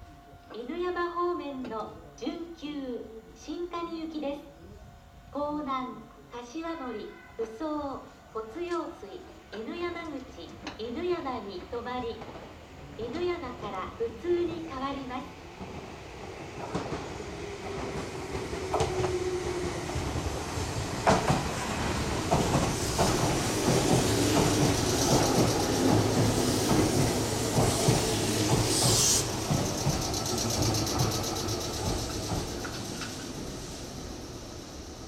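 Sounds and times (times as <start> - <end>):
train wheels clattering over rail joints: 16.6 - 33.5.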